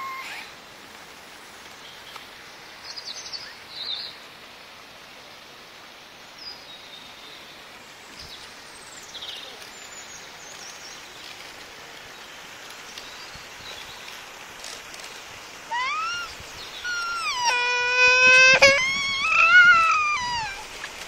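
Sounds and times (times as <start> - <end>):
steady outdoor hiss: 0.0 - 21.0
high-pitched bird chirps: 15.7 - 20.6.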